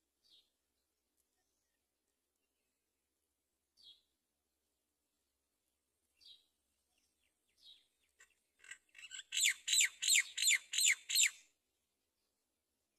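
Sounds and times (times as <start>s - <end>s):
nestlings begging calls: 8.6s - 11.3s.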